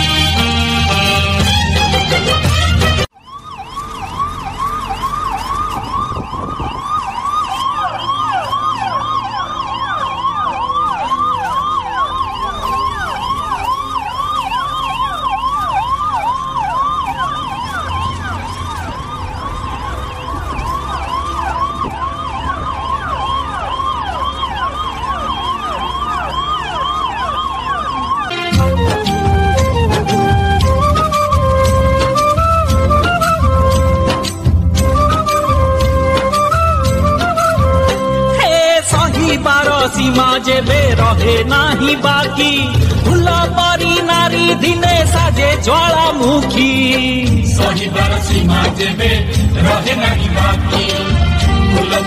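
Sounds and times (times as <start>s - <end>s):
music: 0.0s - 3.2s, 23.6s - 52.0s
siren yelping: 0.0s - 52.0s
second siren overlapping: 3.0s - 46.9s.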